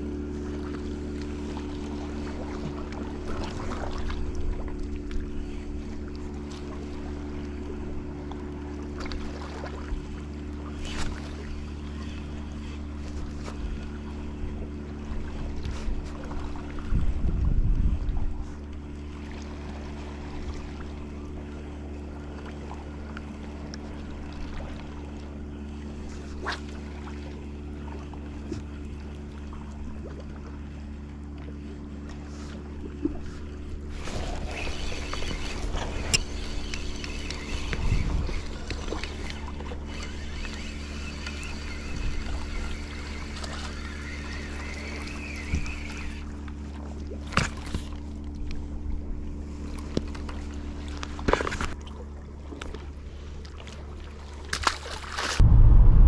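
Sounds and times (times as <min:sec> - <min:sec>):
low motor-like drone: 0:00.0 - 0:56.0
fishing reel whirring: 0:33.9 - 0:46.7.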